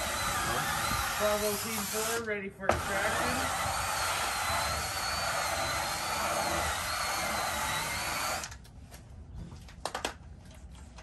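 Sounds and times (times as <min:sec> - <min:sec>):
power drill scrub brush whine: 0:00.0 - 0:08.6.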